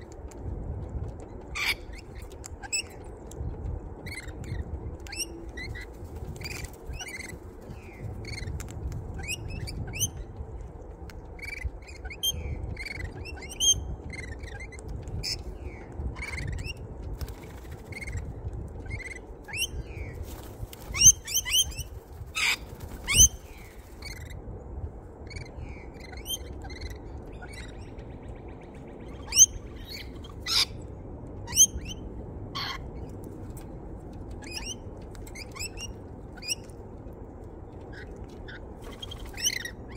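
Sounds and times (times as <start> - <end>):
birds chirping: 1.1 - 24.4, 25.3 - 39.9
wings flapping: 4.3 - 9.1, 17.0 - 19.5, 20.1 - 24.0, 38.8 - 39.7.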